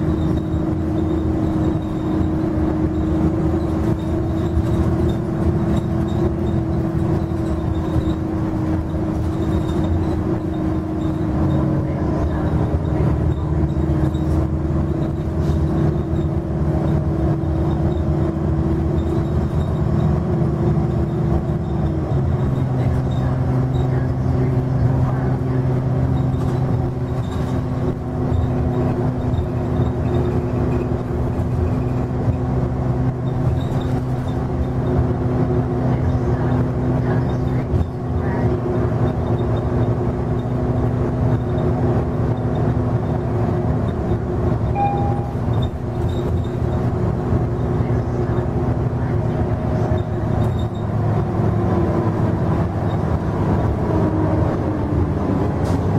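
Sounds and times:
bus diesel engine running: 0.0 - 55.9
road rumble: 0.0 - 55.9
transmission shifting up: 43.7 - 47.8.

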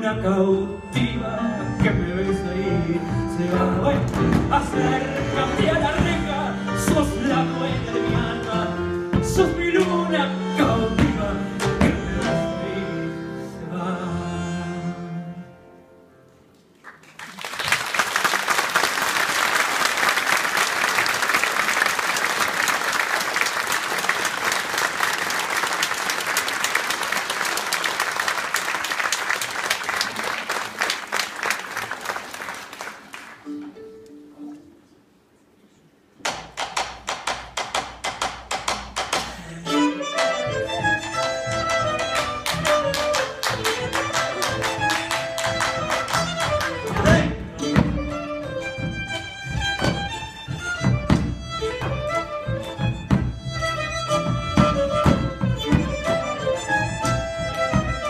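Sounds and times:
bandoneon piano bass and violin: 0.0 - 15.7, 39.4 - 58.0
audience applauding: 16.7 - 33.5, 42.1 - 47.3.

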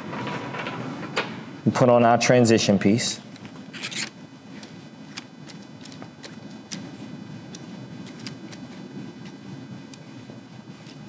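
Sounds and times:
low room hum: 0.0 - 11.0.

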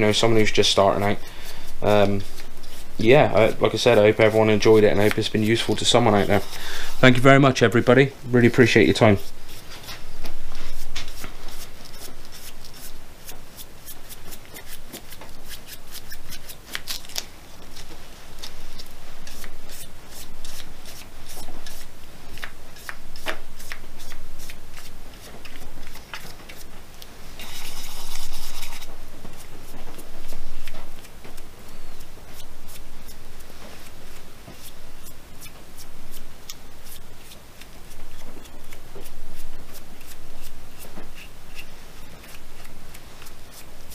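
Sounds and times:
paintbrush scratching on wood: 0.0 - 7.4, 8.4 - 16.5, 27.4 - 31.1.

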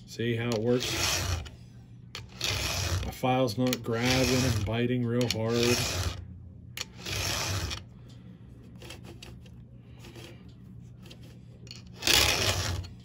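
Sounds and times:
low steady hum: 0.0 - 13.0
faint scrapes and ticks: 0.4 - 6.2, 6.8 - 13.0
file rasping on chainsaw chain: 0.5 - 1.5, 2.2 - 6.2, 6.8 - 7.8, 12.0 - 13.0.

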